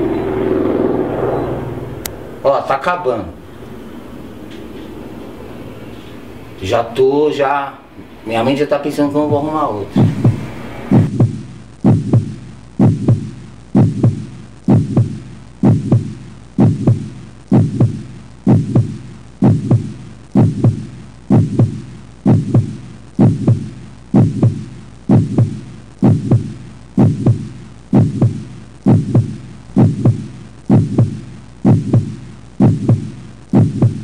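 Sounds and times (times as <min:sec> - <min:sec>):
heartbeat double thumps: 0:09.2 - 0:34.0.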